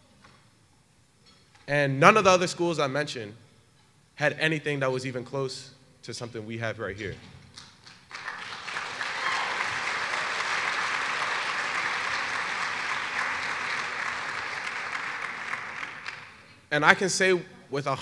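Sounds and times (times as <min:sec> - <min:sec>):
audience applauding: 0:07.8 - 0:16.5.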